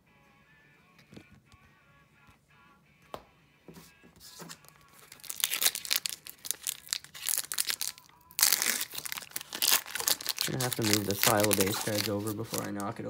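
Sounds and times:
foil wrapper crinkling: 4.4s - 13.0s.

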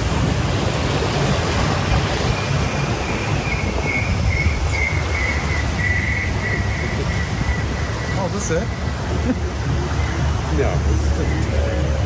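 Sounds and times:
churning water: 0.0s - 12.0s
wavering high-pitched tone: 2.2s - 11.6s.

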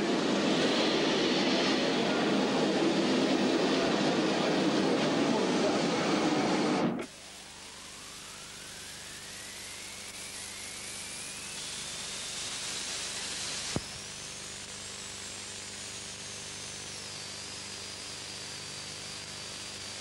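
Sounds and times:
steam locomotive hissing: 0.0s - 14.6s.

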